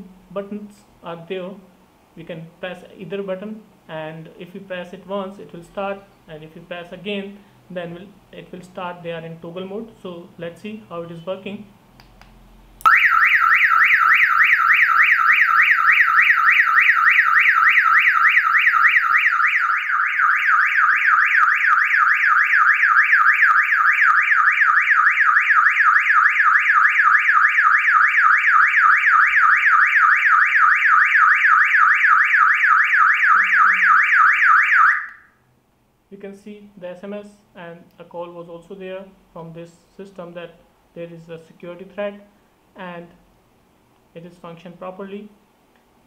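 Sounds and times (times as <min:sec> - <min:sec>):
warbling alarm siren: 0:12.9 - 0:35.4.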